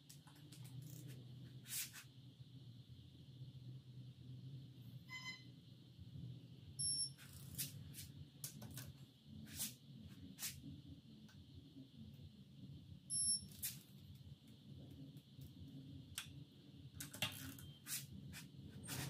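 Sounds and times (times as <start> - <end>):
torque wrench beeping: 6.8 - 7.4, 13.1 - 13.7.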